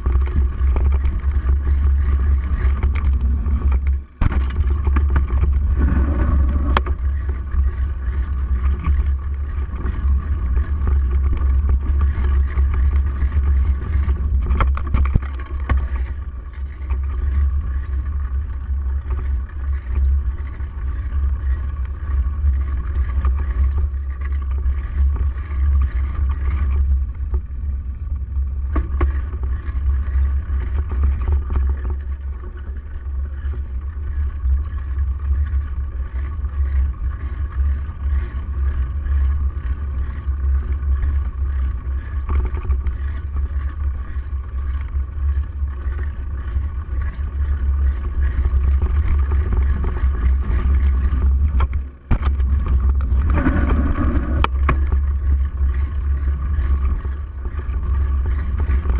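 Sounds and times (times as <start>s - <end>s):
wind buffeting microphone: 0.0s - 28.0s, 36.2s - 58.9s
road rumble with jolts: 0.0s - 58.9s.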